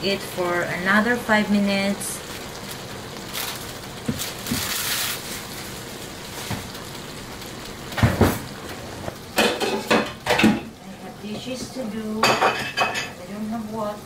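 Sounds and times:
meat and pasta sizzling in skillet: 0:00.0 - 0:14.0
dishes clattering: 0:09.4 - 0:10.7, 0:12.2 - 0:13.2.

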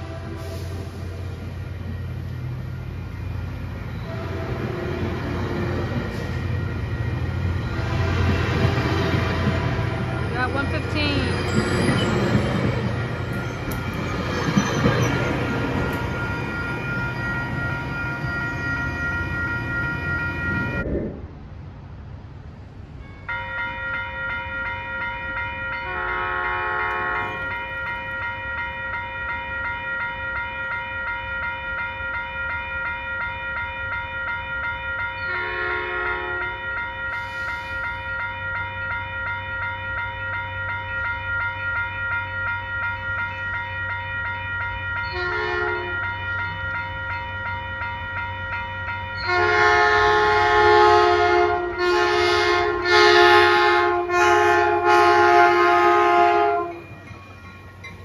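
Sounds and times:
train horn blasts: 0:00.0 - 0:01.3, 0:04.0 - 0:06.6, 0:07.6 - 0:11.3, 0:25.7 - 0:27.9, 0:35.2 - 0:37.7, 0:45.1 - 0:46.5, 0:49.2 - 0:56.9
crossing warning bell ringing: 0:00.0 - 0:20.8, 0:22.9 - 0:58.0.

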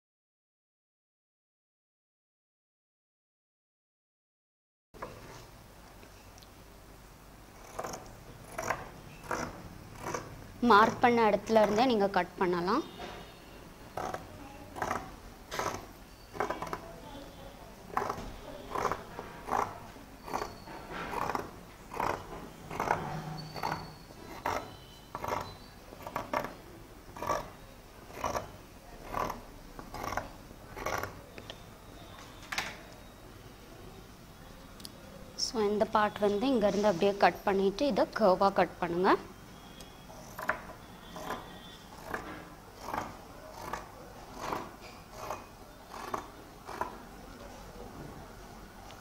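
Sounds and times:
scissors cutting cloth: 0:07.6 - 0:12.0, 0:14.8 - 0:16.9, 0:17.9 - 0:26.6, 0:27.2 - 0:31.2, 0:40.2 - 0:47.0.

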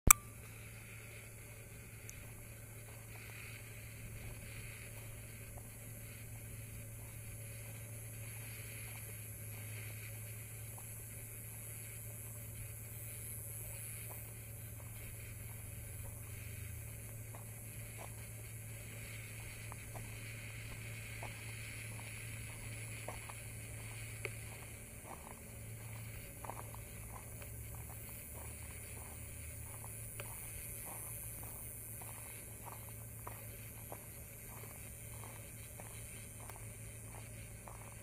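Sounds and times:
high hiss: 0:00.1 - 0:38.0
low hum: 0:00.1 - 0:38.0
footsteps on gravel: 0:02.2 - 0:38.0.

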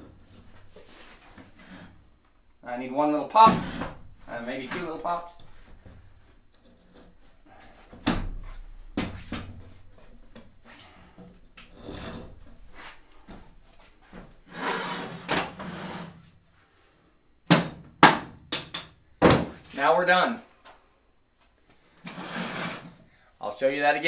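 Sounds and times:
frame rubbing and rustling: 0:00.0 - 0:02.1, 0:03.4 - 0:16.3, 0:22.0 - 0:23.0.

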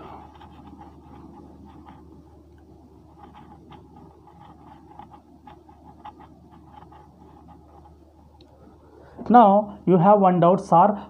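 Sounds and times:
cloth wiping a whiteboard: 0:00.0 - 0:08.2.

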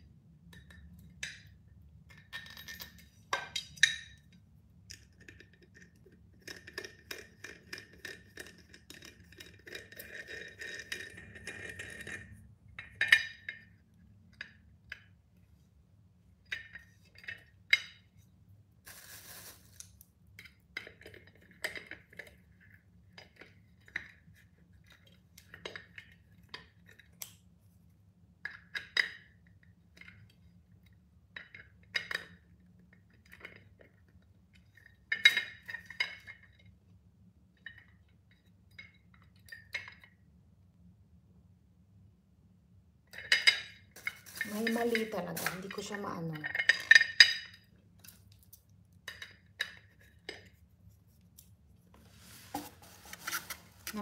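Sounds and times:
rattling scrape: 0:52.1 - 0:54.0.

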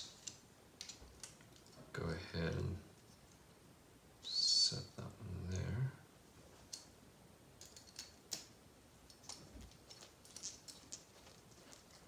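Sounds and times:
faint clicks of screws and plastic parts: 0:00.0 - 0:01.9, 0:07.6 - 0:12.0.

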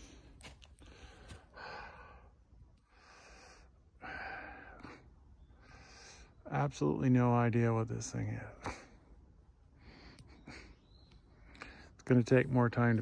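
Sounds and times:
person breathing: 0:00.0 - 0:06.4.

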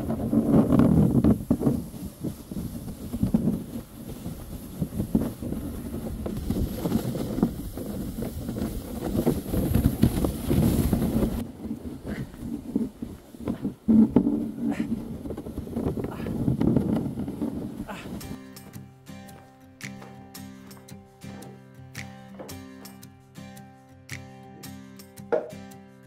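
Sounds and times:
sled scraping over snow: 0:00.0 - 0:18.4
wind on microphone: 0:00.0 - 0:18.4
footsteps crunching in snow: 0:00.0 - 0:23.1.

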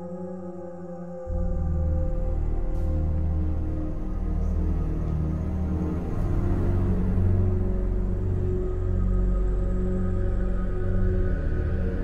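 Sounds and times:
eerie droning music: 0:00.0 - 0:12.0.

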